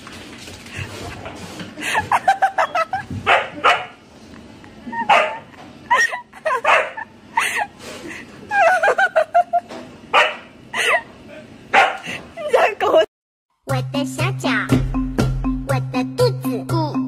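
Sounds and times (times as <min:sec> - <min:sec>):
puppy yipping and barking: 0:05.0 - 0:05.4.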